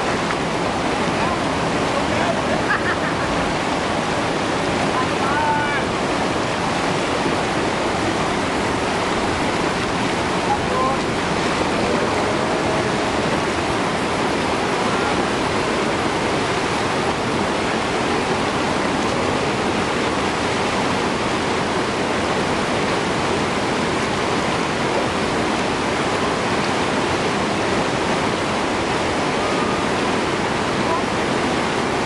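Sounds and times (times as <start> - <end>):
river rapids rushing: 0.0 - 32.0.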